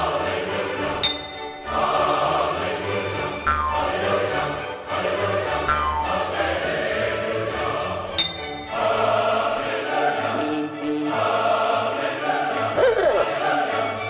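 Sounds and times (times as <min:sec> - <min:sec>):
choral music with orchestra: 0:00.0 - 0:14.0
bright ringing strike: 0:01.0 - 0:01.7, 0:08.2 - 0:08.8.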